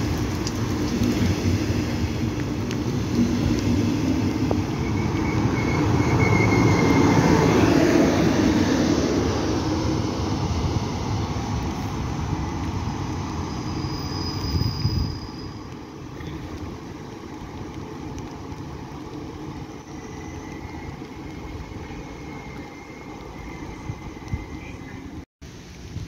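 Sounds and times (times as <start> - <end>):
train rumbling: 0.0 - 25.3
rain hissing: 0.0 - 26.0
wind: 0.0 - 26.0.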